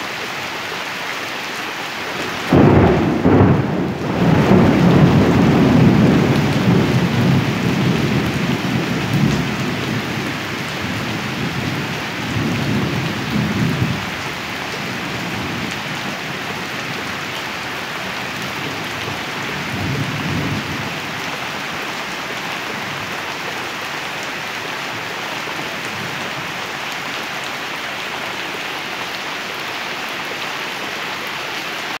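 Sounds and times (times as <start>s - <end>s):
rain falling steadily: 0.0s - 32.0s
rolling thunder: 2.5s - 17.1s.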